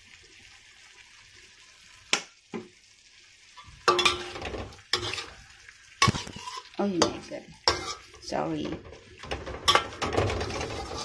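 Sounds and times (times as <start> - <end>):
faint sizzle: 0.0 - 11.0
metal spoon scraping a wok: 3.9 - 5.4, 6.0 - 8.3, 9.2 - 11.0.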